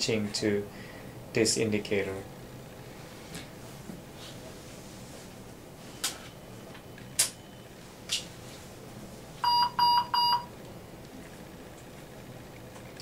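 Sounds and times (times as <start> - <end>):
ventilator alarm beeps: 5.9 - 7.9, 9.4 - 10.6.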